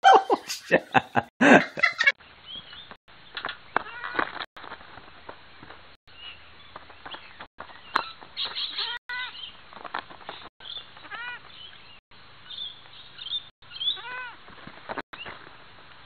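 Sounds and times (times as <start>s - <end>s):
goat kids bleating: 11.0s - 11.4s, 14.0s - 14.4s.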